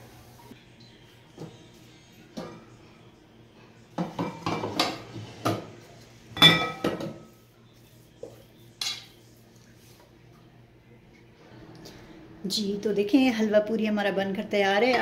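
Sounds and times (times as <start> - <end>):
dishes and utensil clinking: 4.0 - 5.7, 6.4 - 7.3, 8.7 - 9.2.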